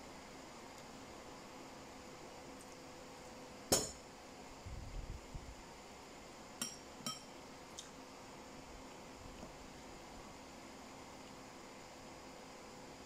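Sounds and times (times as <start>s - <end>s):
metal fork clinking on ceramic bowl: 6.6s - 7.3s.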